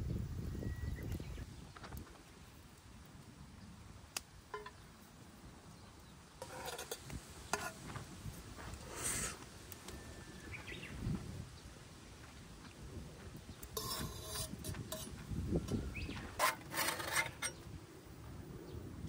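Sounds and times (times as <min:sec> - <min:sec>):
metal utensil clinking on cookware: 0:06.4 - 0:07.8, 0:13.8 - 0:15.1
short hiss: 0:08.8 - 0:09.4.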